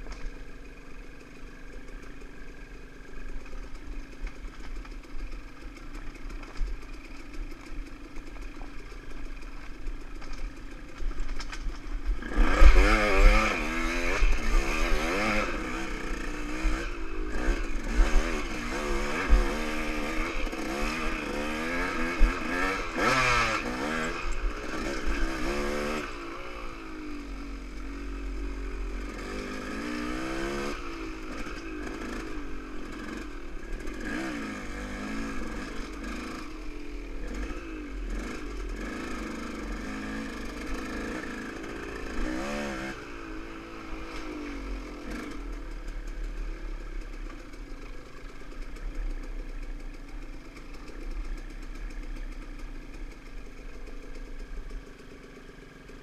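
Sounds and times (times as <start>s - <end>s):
dirt bike engine revving: 11.9s - 56.0s.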